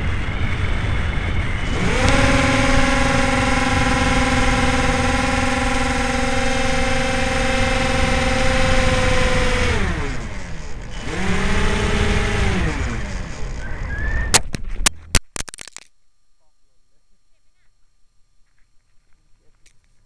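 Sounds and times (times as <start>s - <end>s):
electric motor and propeller whining: 0.0s - 15.2s.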